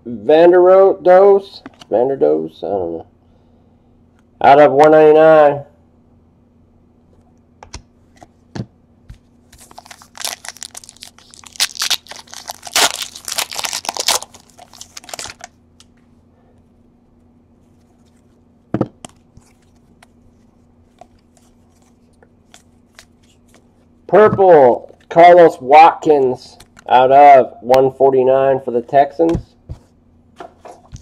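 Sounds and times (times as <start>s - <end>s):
cards being shuffled: 9.1s - 16.0s, 19.0s - 23.7s, 29.3s - 31.0s
wrapper tearing and crinkling: 9.6s - 15.5s.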